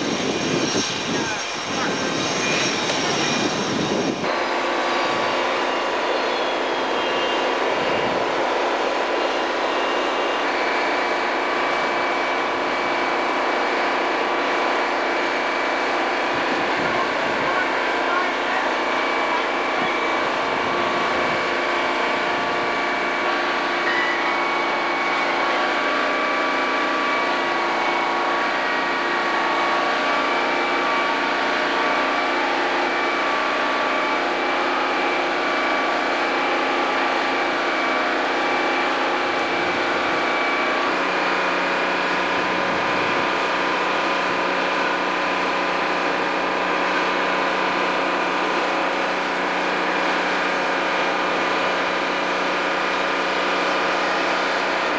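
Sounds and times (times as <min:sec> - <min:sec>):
loud engine noise: 0:00.0 - 0:54.9
whining tones: 0:00.0 - 0:54.9.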